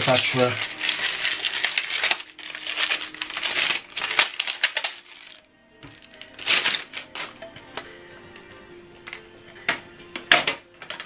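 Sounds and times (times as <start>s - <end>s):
plastic film crinkling: 0.0s - 7.4s
faint background music: 0.0s - 11.0s.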